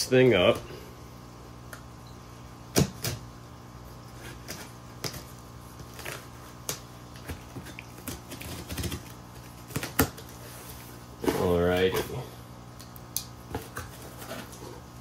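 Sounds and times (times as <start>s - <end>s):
knife cutting packing tape: 4.2s - 10.3s.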